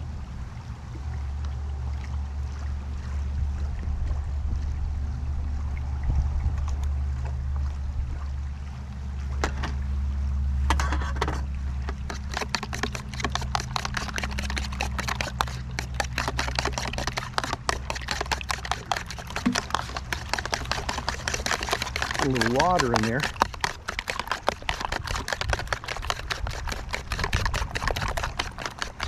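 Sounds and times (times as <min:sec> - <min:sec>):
low rumble: 0:00.0 - 0:11.8
fork clicking against plastic: 0:11.9 - 0:29.0.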